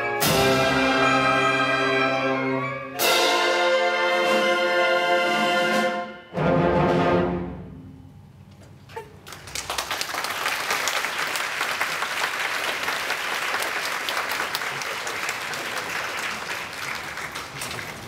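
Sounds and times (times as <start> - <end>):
audience applauding: 9.2 - 18.0.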